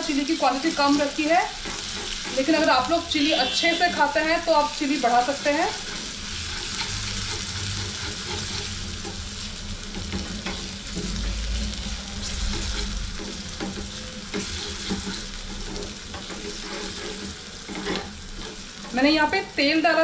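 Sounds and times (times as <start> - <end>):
seeds sizzling in oil: 0.0 - 20.0
spoon scraping pan: 0.2 - 19.6.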